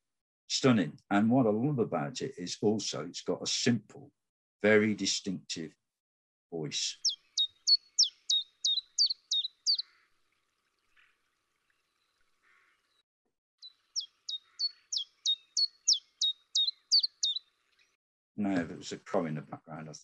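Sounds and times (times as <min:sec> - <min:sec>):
chiffchaff singing: 0:06.7 - 0:09.8.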